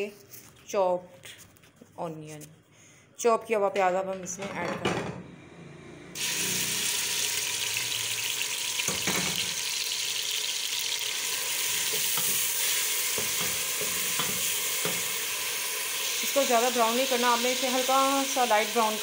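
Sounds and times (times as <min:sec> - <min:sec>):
onion sizzling in hot oil: 0:06.2 - 0:19.0.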